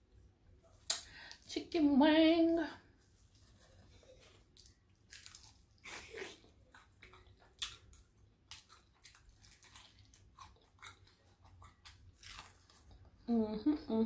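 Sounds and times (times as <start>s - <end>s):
crunchy chewing: 3.4s - 13.1s.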